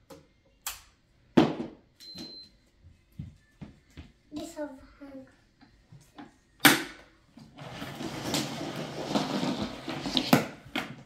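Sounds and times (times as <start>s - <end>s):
plastic rattling and scraping: 7.4s - 11.0s.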